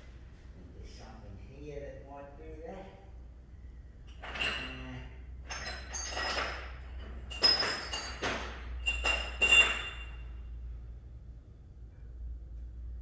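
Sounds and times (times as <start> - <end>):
metal pieces clinking and scraping: 5.5 - 10.2.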